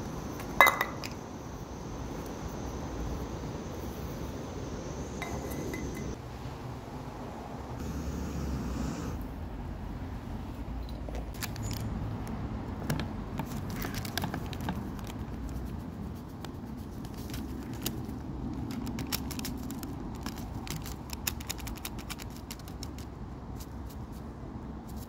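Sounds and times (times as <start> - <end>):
foil sachet crinkling: 17.0 - 23.0.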